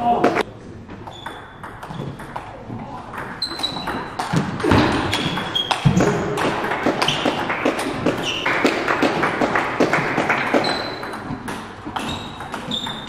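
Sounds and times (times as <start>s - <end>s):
ping pong ball clicking off rackets: 1.0s - 2.5s
ball bouncing on table: 1.0s - 13.0s.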